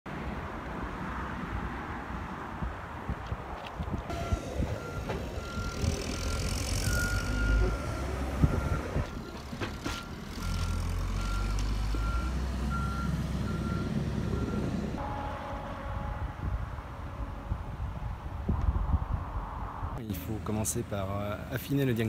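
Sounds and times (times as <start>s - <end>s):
diesel engine rumble: 3.4s - 22.0s
reversing alarm beeping: 4.1s - 9.1s, 9.8s - 15.6s.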